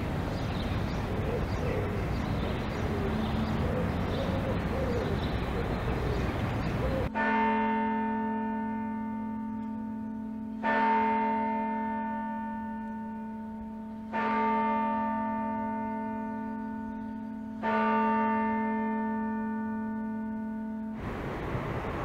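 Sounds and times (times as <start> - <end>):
church bell tolling: 7.1 - 22.0.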